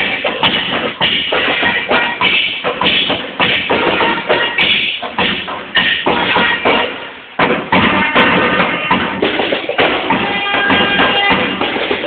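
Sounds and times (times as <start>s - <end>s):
folk dance music: 0.0s - 12.0s
large drum beating: 0.0s - 12.0s.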